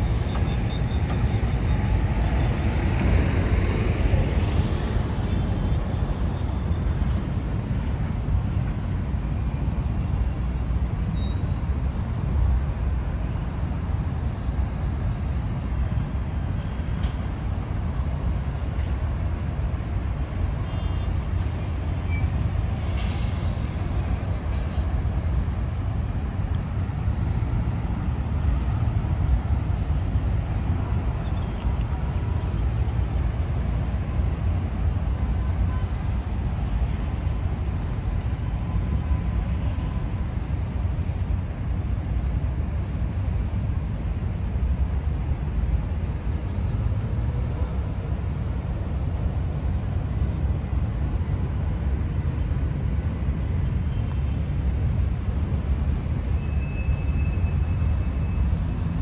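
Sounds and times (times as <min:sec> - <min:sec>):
city traffic rumble: 0:00.0 - 0:59.0
brief hiss: 0:22.8 - 0:23.7.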